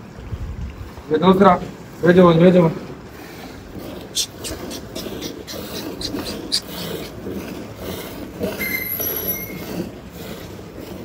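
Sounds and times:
brief high whistle: 8.6 - 9.6.

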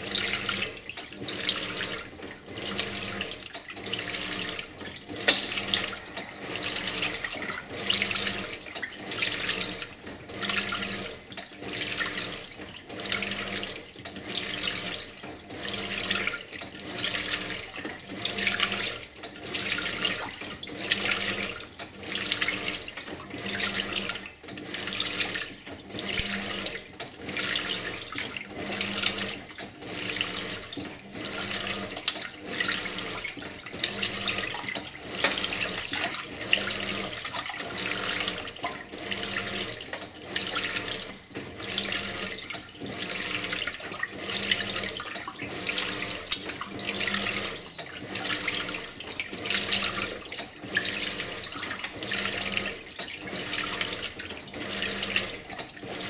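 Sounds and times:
washer motor humming: 0.0 - 56.0
washer water swishing: 0.0 - 56.0.

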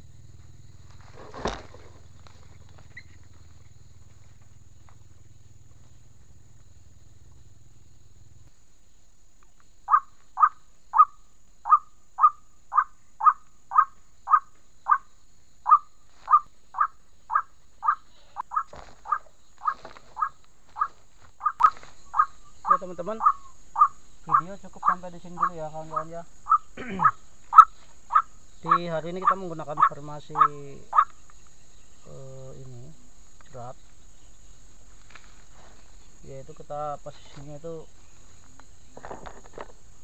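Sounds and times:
faint low rural hum: 0.0 - 40.0
waterhen calling: 15.7 - 31.2.

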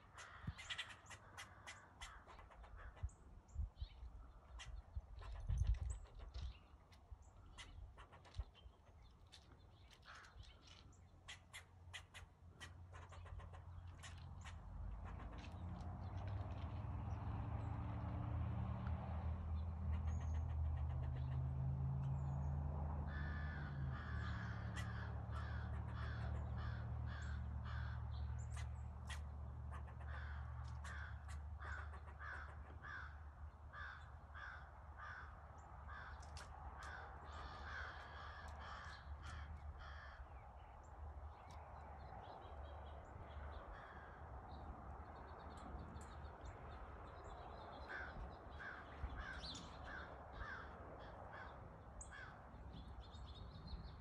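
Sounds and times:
crows cawing: 0.0 - 3.1, 10.0 - 10.4, 23.0 - 40.4, 43.7 - 44.4, 47.8 - 52.5.

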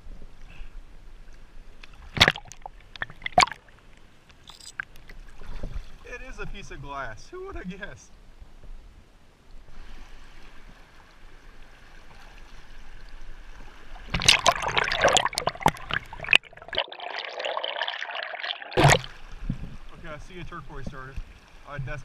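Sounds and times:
shallow river water running: 0.0 - 22.0
loud splashing: 14.1 - 19.2.

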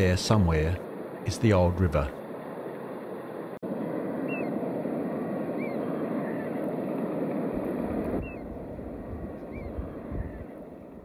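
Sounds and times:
steady rushing background: 0.0 - 11.0
high bird chirps: 4.3 - 4.6, 5.5 - 6.6, 8.2 - 10.6.

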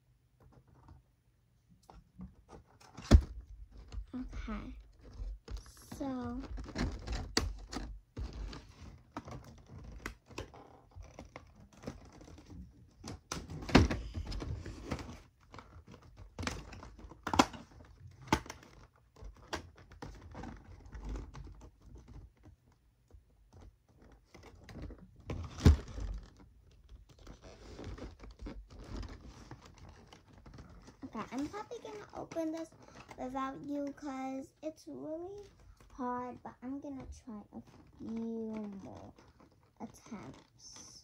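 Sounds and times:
toy packaging being handled: 25.6 - 34.0.

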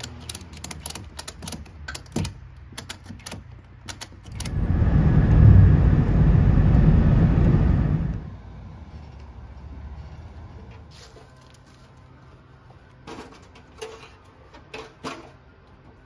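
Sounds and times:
vehicle road and wind rumble: 0.0 - 16.0.

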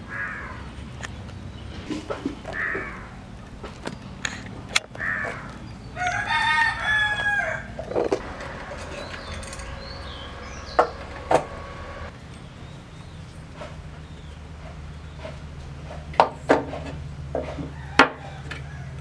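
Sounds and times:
bird calls: 0.0 - 16.1
rooster crowing: 5.0 - 12.1, 17.6 - 19.0
sharp knocks: 8.0 - 12.1.

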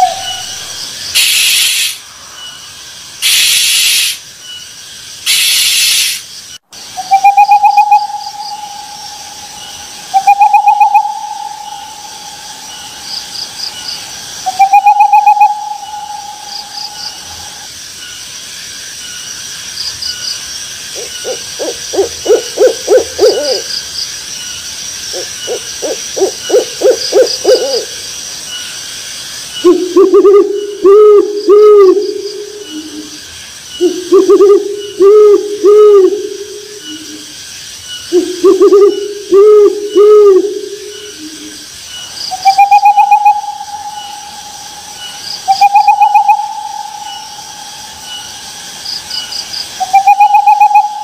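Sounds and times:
owl hooting: 0.0 - 2.0, 5.2 - 6.3, 6.9 - 13.0, 14.4 - 17.6, 20.9 - 23.7, 25.1 - 28.0, 29.6 - 33.2, 33.8 - 37.3, 38.1 - 41.6, 42.3 - 48.3, 49.8 - 51.0
faint high chirping: 0.0 - 51.0.

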